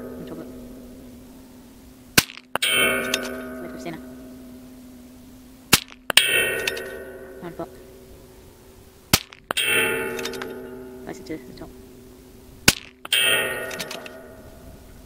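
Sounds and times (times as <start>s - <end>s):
steel target plate clanging: 2.0s - 15.0s
rifle shots: 5.7s - 7.1s, 9.1s - 10.6s, 12.6s - 14.3s.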